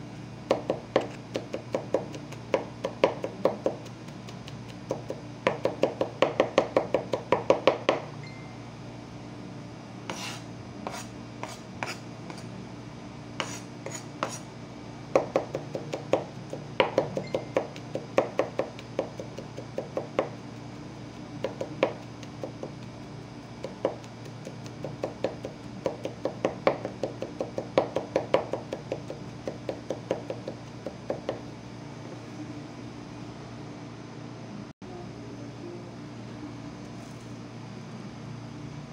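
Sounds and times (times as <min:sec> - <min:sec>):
knife chopping on wooden board: 0:00.5 - 0:08.0, 0:15.1 - 0:20.4, 0:21.4 - 0:22.8, 0:23.6 - 0:31.4.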